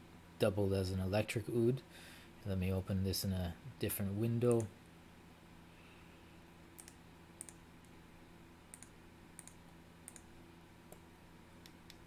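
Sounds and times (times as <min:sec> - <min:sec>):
faint electrical hum: 0:00.0 - 0:12.0
computer mouse clicks: 0:06.8 - 0:07.6, 0:08.7 - 0:10.3.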